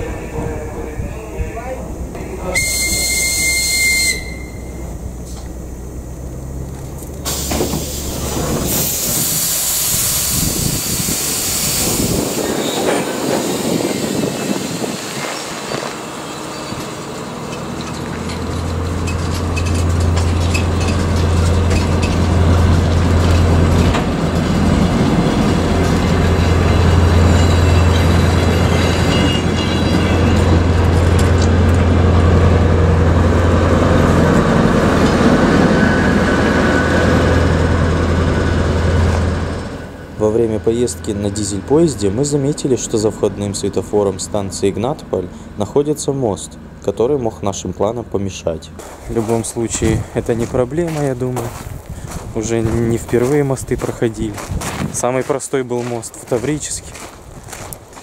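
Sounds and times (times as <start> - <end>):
diesel engine drone: 0.0 - 58.0
high whistle tone: 2.5 - 5.0
loud air hiss: 7.2 - 15.7.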